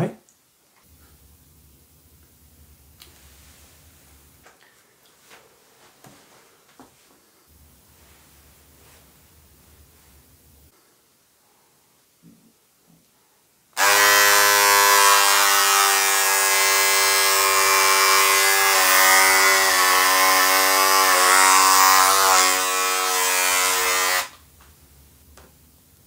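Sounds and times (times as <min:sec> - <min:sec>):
electric shaver buzzing: 0:13.8 - 0:24.4.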